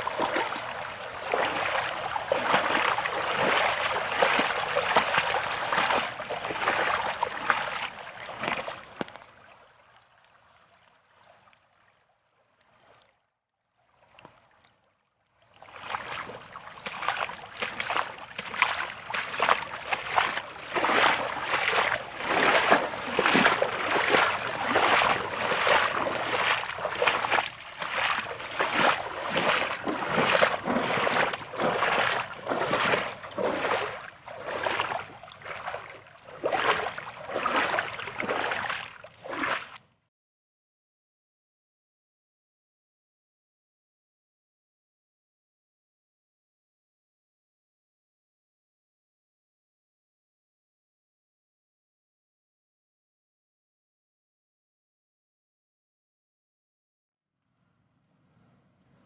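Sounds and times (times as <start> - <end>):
floodwater rushing: 0.0 - 9.2, 15.7 - 39.7.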